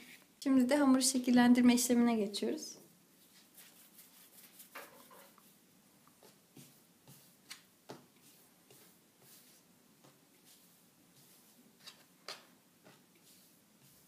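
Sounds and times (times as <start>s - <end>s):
hands rolling dough on wooden board: 3.2s - 14.0s.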